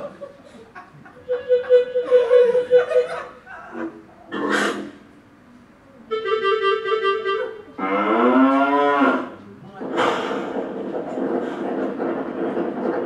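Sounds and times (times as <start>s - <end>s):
broad rough noise: 0.0s - 5.4s, 6.1s - 13.0s
cartoon bull mooing: 7.8s - 9.3s.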